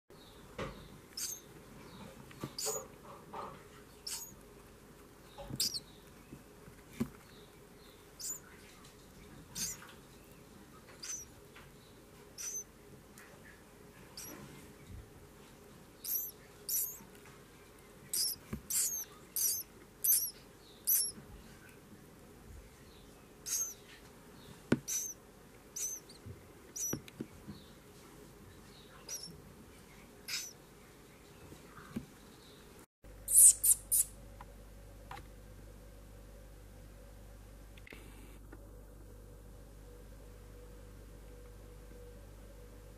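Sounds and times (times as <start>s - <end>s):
nestlings begging with high peeps: 0.2s - 2.9s, 3.7s - 4.4s, 5.2s - 6.2s, 7.3s - 12.8s, 13.4s - 14.4s, 15.9s - 17.1s, 18.0s - 21.2s, 22.8s - 27.8s, 28.6s - 29.4s, 30.2s - 30.7s, 33.3s - 34.1s.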